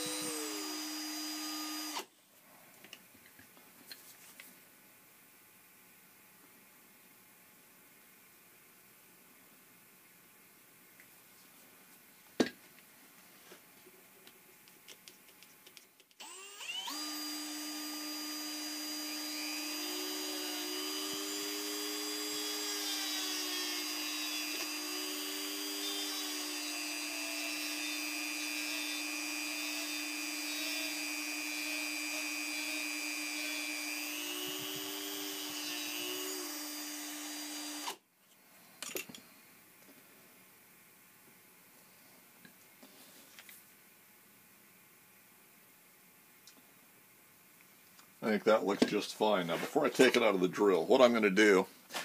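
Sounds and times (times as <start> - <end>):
cordless drill motor whine: 0.0 - 2.1, 16.2 - 38.0.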